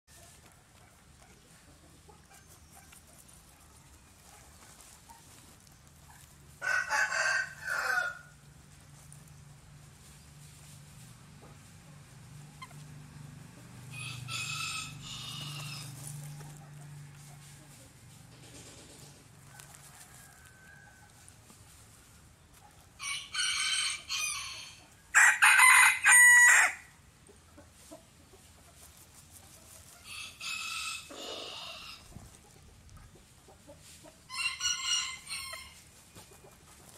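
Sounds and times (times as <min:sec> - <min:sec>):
chicken loud call: 0:06.6 - 0:08.3, 0:13.9 - 0:16.1, 0:23.0 - 0:26.9, 0:30.1 - 0:32.1, 0:34.3 - 0:35.8
rooster crowing: 0:06.6 - 0:08.4, 0:13.9 - 0:17.5, 0:19.4 - 0:21.3, 0:23.0 - 0:26.9, 0:30.1 - 0:32.0, 0:34.3 - 0:35.8.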